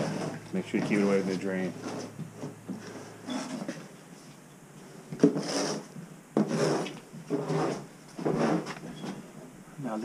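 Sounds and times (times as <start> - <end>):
plastic shovel scraping concrete: 0.0 - 2.1, 5.2 - 8.8.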